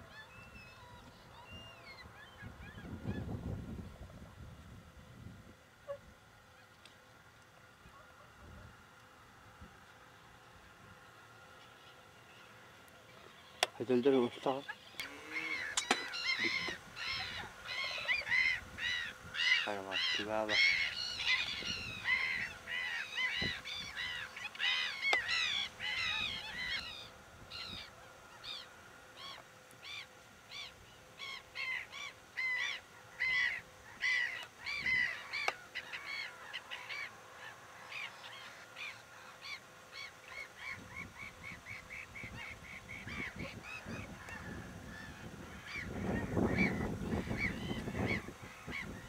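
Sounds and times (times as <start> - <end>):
swans honking: 13.3 - 49.0.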